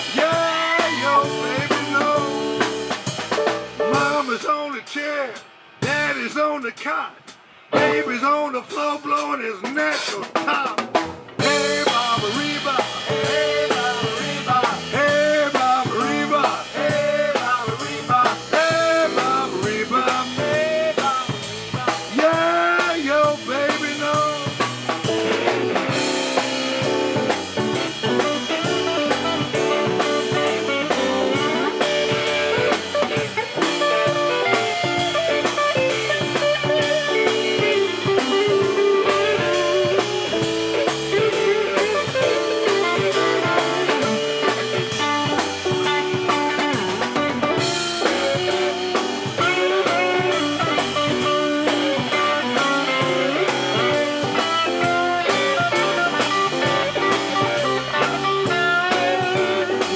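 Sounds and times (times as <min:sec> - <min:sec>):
live blues-rock band playing: 0:00.0 - 0:59.9.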